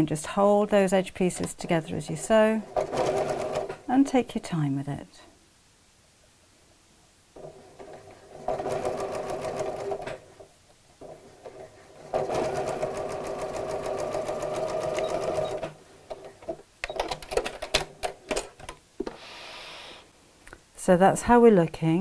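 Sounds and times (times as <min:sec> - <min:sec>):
sewing machine stitching: 0:02.8 - 0:03.8, 0:07.4 - 0:10.3, 0:11.0 - 0:15.8.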